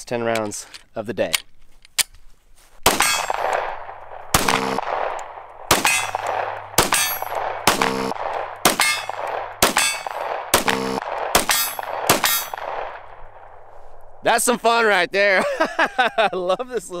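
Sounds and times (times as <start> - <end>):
pistol shots: 2.8 - 13.7
steel target ringing: 2.9 - 3.5, 4.3 - 5.1, 5.7 - 12.8.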